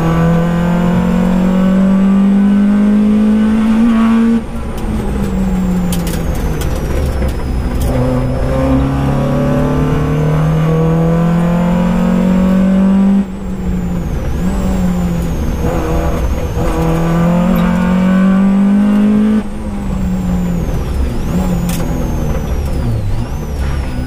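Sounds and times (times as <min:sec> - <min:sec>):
car engine revving: 0:00.0 - 0:24.0
tyre and road rumble: 0:04.2 - 0:10.9, 0:11.8 - 0:24.0.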